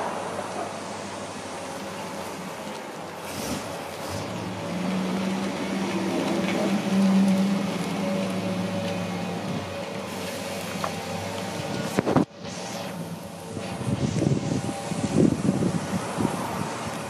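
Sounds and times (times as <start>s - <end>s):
truck engine driving past: 0.0s - 17.0s.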